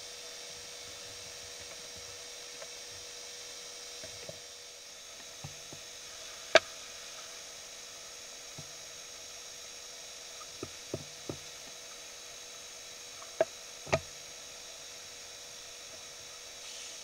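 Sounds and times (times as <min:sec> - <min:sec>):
electrical hum and hiss: 0:00.0 - 0:17.0.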